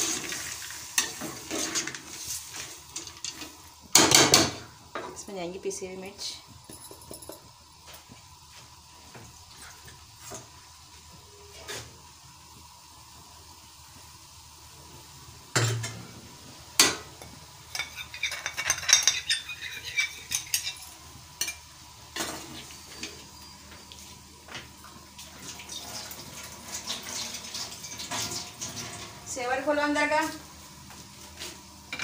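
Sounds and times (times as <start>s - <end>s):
spoon scraping on plate: 17.7s - 21.6s.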